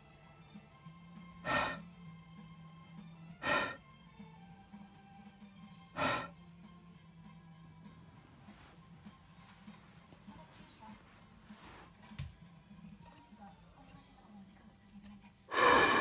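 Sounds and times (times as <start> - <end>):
puffs of breath: 1.4 - 1.9, 3.4 - 3.8, 5.9 - 6.4, 15.5 - 16.0.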